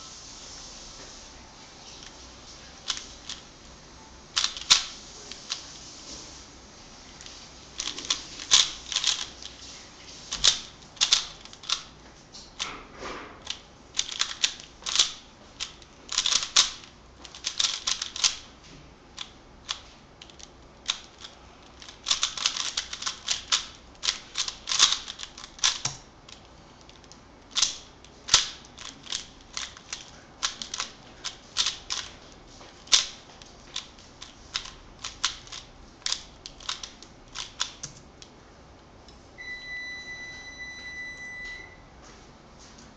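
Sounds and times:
puzzle cube layers clicking: 4.4s - 5.6s, 7.8s - 9.6s, 10.3s - 11.9s, 13.4s - 18.5s, 19.2s - 30.9s, 32.9s - 38.0s.

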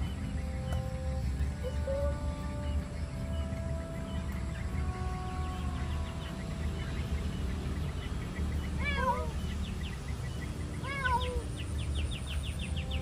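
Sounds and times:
cat meowing: 8.8s - 9.4s, 10.8s - 11.5s.

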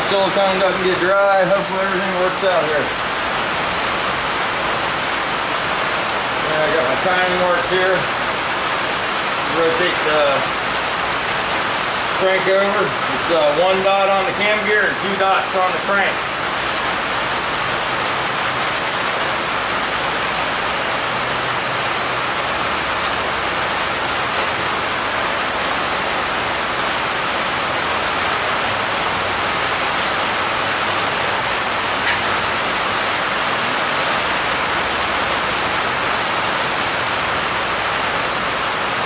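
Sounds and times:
heavy rain falling: 0.0s - 39.0s.

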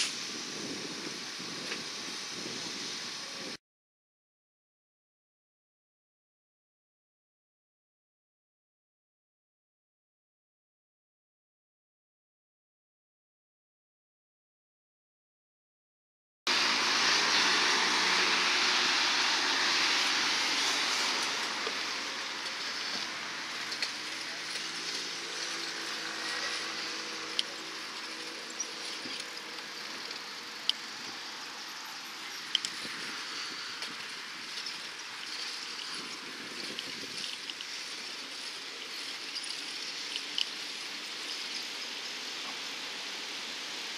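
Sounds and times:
faint engine hum: 16.5s - 41.5s
car tyres hissing: 16.5s - 43.9s.

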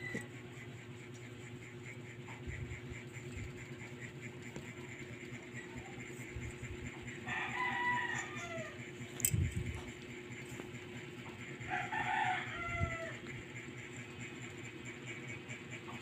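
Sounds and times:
rooster crowing: 7.2s - 8.9s, 11.6s - 13.4s.

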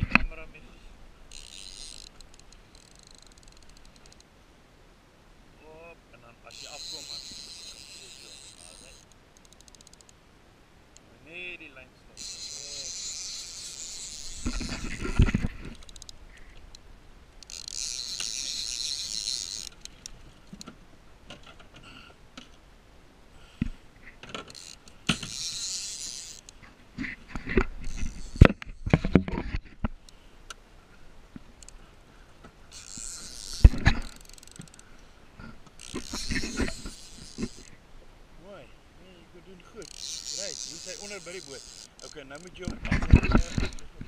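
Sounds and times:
fishing reel ratcheting: 1.3s - 4.3s, 6.5s - 10.2s, 12.2s - 20.7s, 24.3s - 26.6s, 27.4s - 29.1s, 32.7s - 34.9s, 35.7s - 37.8s, 39.8s - 43.9s
sharp knocks and handling clatter: 14.0s - 16.6s, 17.4s - 22.6s, 23.6s - 30.0s, 40.0s - 44.0s.

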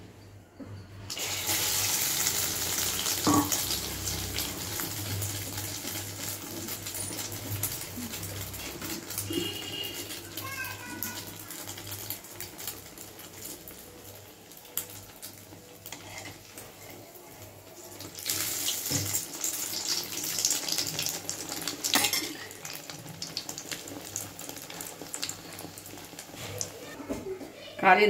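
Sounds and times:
bread deep-frying in oil: 1.1s - 27.0s
spoon stirring oil: 14.7s - 26.7s.

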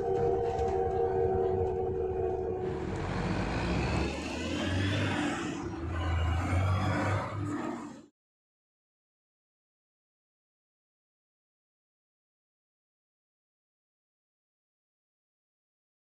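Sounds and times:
cars passing: 0.0s - 7.6s
hum inside moving bus: 0.0s - 7.6s
street traffic: 0.0s - 7.6s.

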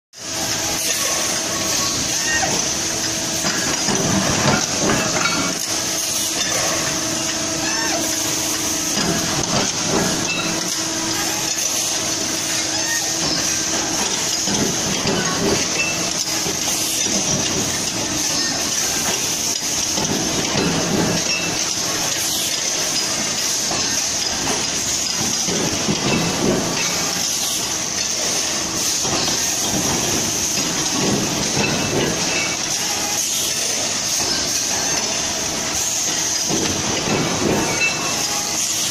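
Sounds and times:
machinery hissing and humming: 0.2s - 38.9s
machine presses knocking: 12.8s - 21.9s, 28.1s - 32.7s, 36.0s - 38.4s.

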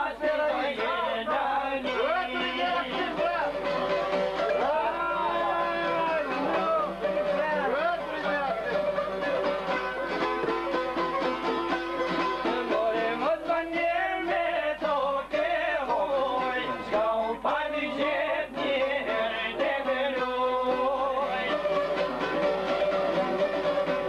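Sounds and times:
man singing: 0.0s - 3.8s, 4.5s - 9.4s, 12.4s - 21.8s
plucked lute strings: 0.0s - 24.0s.

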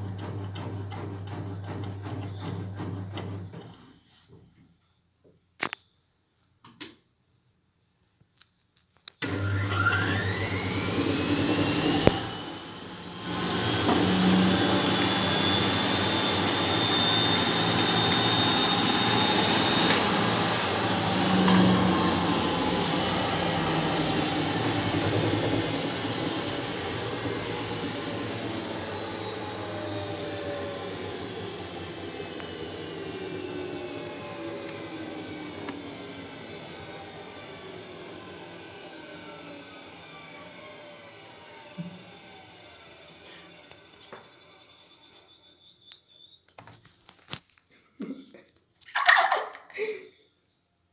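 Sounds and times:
washing machine spinning: 0.0s - 4.0s, 9.2s - 45.4s.

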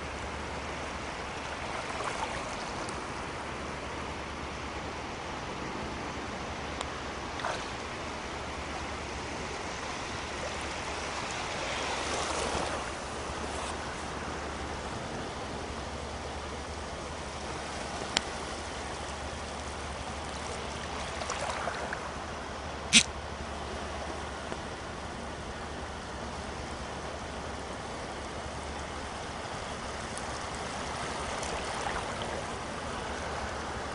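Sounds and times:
small waves breaking on shore: 0.0s - 33.9s
short sharp clicks: 22.9s - 23.1s.

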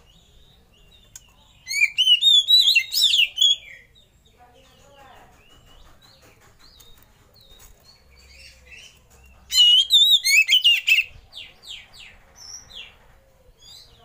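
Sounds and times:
bird singing warbling song: 0.0s - 14.0s.

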